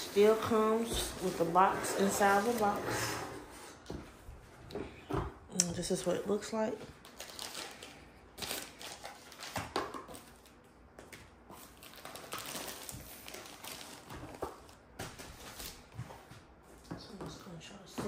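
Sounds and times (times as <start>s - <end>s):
plastic packaging crinkling: 7.0s - 10.7s, 11.4s - 15.8s.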